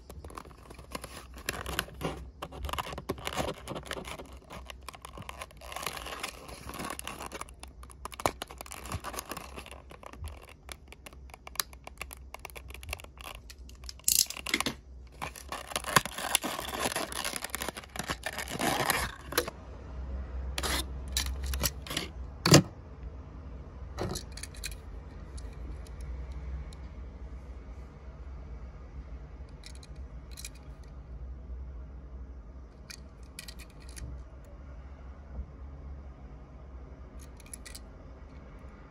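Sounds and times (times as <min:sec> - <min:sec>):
plastic packaging crinkling: 0:00.0 - 0:19.5.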